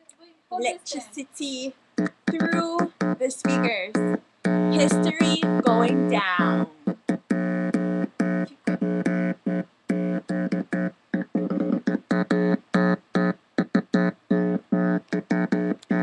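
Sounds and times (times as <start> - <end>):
electronic buzzing tone: 2.0 - 16.0
clicks: 13.2 - 16.0.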